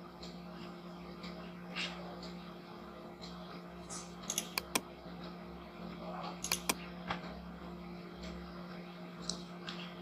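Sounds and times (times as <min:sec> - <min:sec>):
steady low hum: 0:00.0 - 0:10.0
computer mouse clicks: 0:04.3 - 0:04.8, 0:06.4 - 0:06.8.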